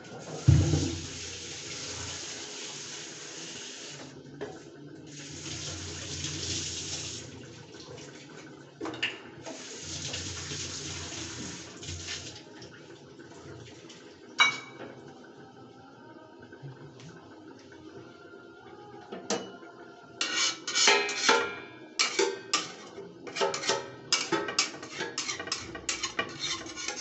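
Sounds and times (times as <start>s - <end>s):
water running and splashing: 0.0s - 8.7s, 9.4s - 14.4s.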